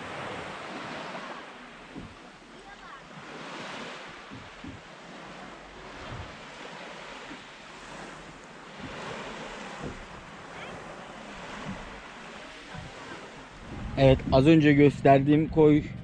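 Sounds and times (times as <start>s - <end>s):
sea water lapping: 0.0s - 16.0s
soft low thumps: 1.8s - 2.4s, 4.1s - 5.0s, 5.6s - 6.4s, 8.3s - 10.4s, 11.3s - 16.0s
wind on microphone: 3.1s - 16.0s.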